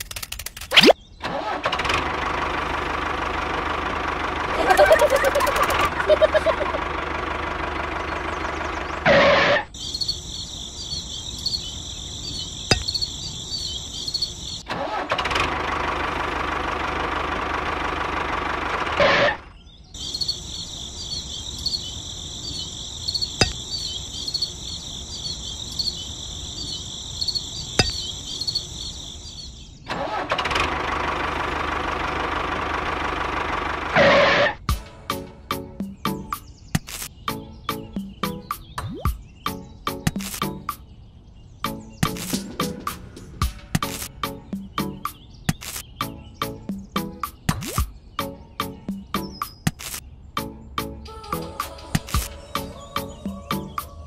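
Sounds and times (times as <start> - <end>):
sharp clicks: 0.0 - 1.0, 36.8 - 37.2, 40.1 - 40.8, 42.0 - 42.6, 45.5 - 45.9, 49.4 - 50.0
model tractor engine running: 0.0 - 9.6, 14.7 - 19.3, 29.9 - 34.5.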